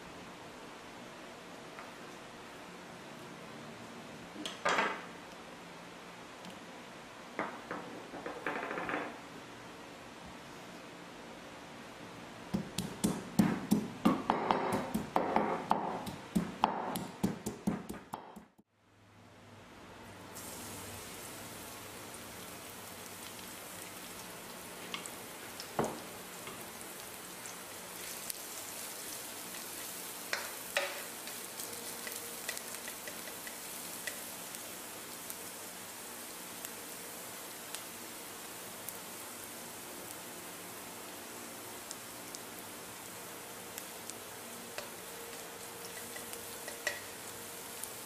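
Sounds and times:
pestle pounding in clay mortar: 0:12.5 - 0:18.6
garlic sizzling in oil: 0:20.4 - 0:48.0.

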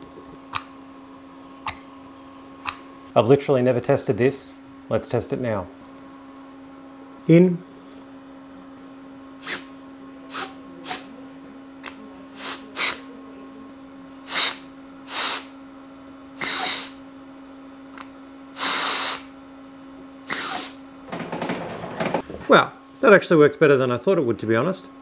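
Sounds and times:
pressurised air hissing: 0:09.4 - 0:09.7, 0:10.3 - 0:11.1, 0:12.4 - 0:13.0, 0:14.3 - 0:15.5, 0:16.4 - 0:17.0, 0:18.6 - 0:19.3, 0:20.3 - 0:20.8.

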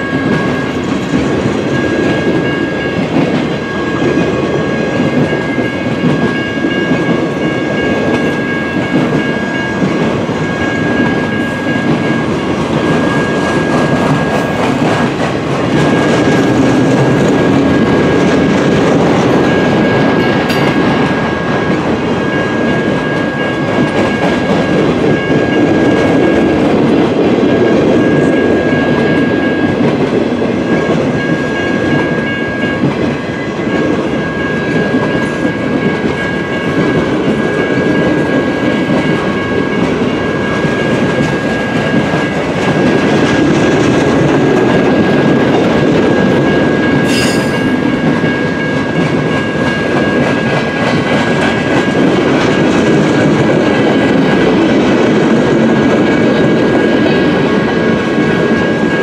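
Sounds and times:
train wheels clacking over rails: 0:00.0 - 0:59.0
thin high tone: 0:46.8 - 0:48.6
sharp metal clank: 0:47.0 - 0:47.8.

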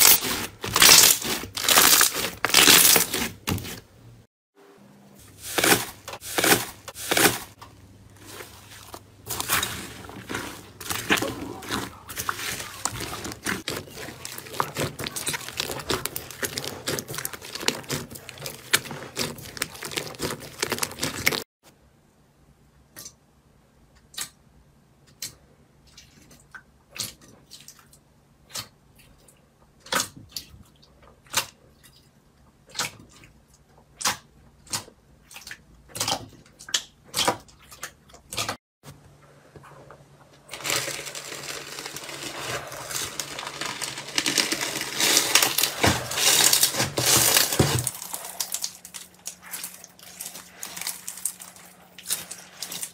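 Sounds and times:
slime being scraped: 0:00.0 - 0:03.8, 0:05.3 - 0:21.4, 0:41.7 - 0:52.9
slime crackling while kneaded: 0:00.0 - 0:03.8, 0:05.4 - 0:21.5, 0:40.5 - 0:52.9.

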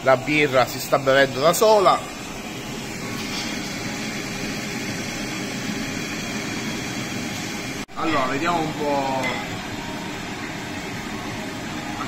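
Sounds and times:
ventilation rushing hum: 0:00.0 - 0:12.0.

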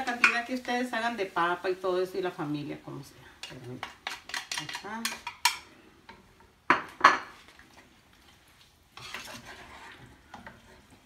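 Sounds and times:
kitchenware clinking: 0:03.4 - 0:05.7, 0:06.7 - 0:07.4
utensil scraping in pan: 0:03.4 - 0:06.2, 0:07.2 - 0:11.0.

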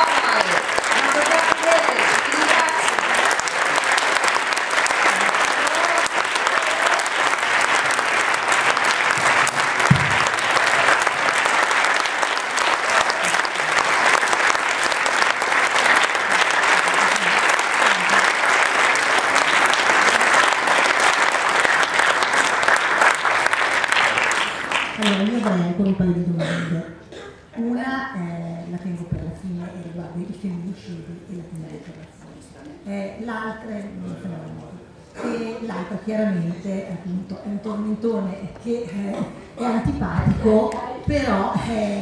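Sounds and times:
audience applauding: 0:00.0 - 0:25.5
low thump: 0:09.9 - 0:10.3.

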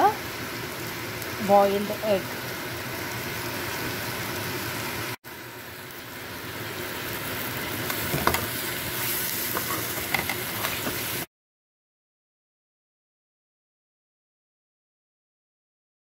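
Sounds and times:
onion sizzling in oil: 0:00.0 - 0:11.3.

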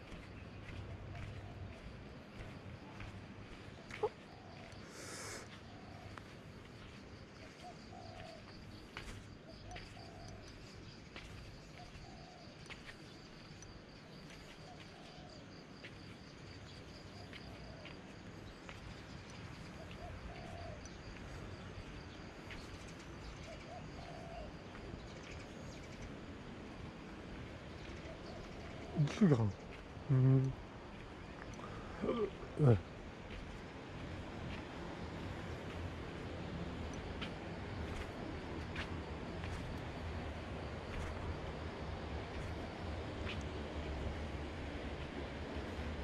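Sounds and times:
doves cooing: 0:03.7 - 0:06.2, 0:07.4 - 0:08.6, 0:09.4 - 0:10.6, 0:14.6 - 0:15.5, 0:19.7 - 0:21.4, 0:23.2 - 0:24.8, 0:27.9 - 0:30.6, 0:31.4 - 0:33.0.

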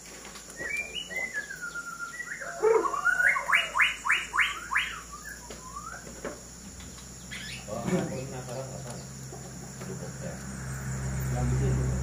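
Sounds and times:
bird singing whistled phrases: 0:00.6 - 0:06.1, 0:07.3 - 0:07.7.

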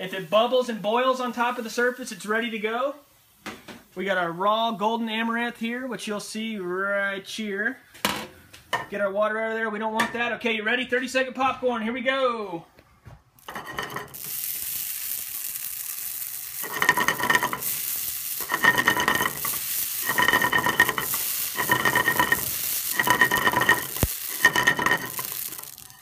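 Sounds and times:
grain popping in a frying pan: 0:13.4 - 0:26.0
pan scraping on burner: 0:13.4 - 0:26.0.

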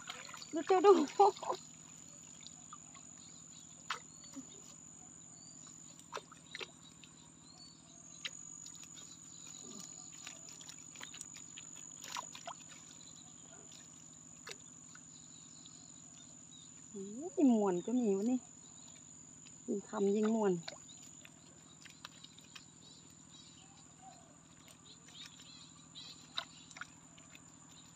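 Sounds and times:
crickets trilling: 0:00.0 - 0:27.9.

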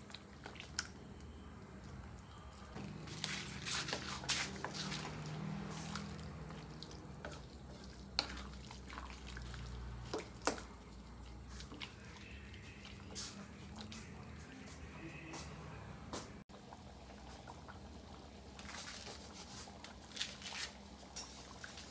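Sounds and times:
thick sauce sloshing: 0:00.0 - 0:15.2.

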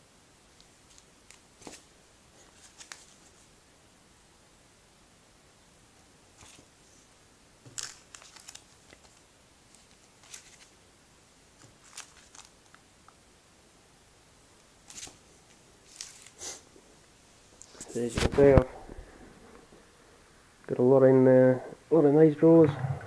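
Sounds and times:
plastic bags crinkling: 0:07.7 - 0:10.7, 0:11.6 - 0:12.8, 0:15.8 - 0:16.4.

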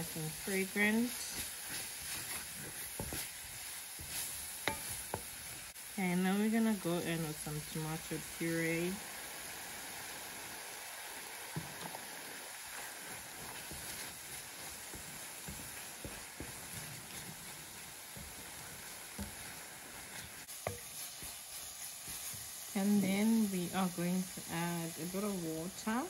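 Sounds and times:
wooden spoon scraping a pan: 0:00.0 - 0:05.8, 0:11.2 - 0:24.4
puree sizzling in a pan: 0:00.0 - 0:26.0.

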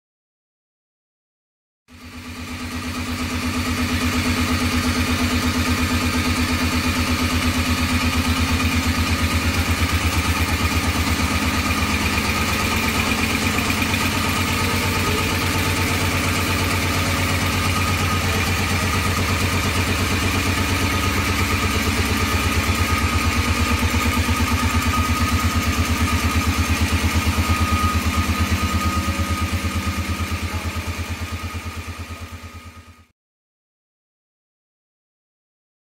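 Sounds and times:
air compressor running: 0:01.9 - 0:33.1.

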